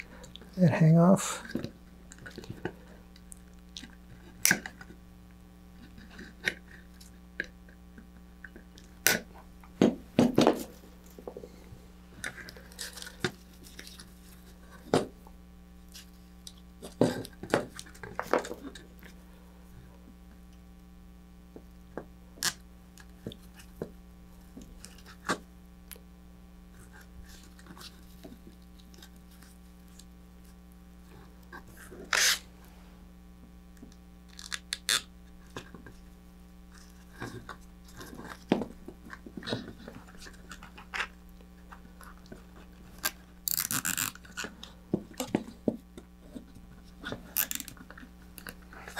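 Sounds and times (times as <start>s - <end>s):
clicks and rustles of zip ties: 33.8s - 36.0s, 39.1s - 48.9s
pliers snipping zip ties: 43.5s - 44.2s.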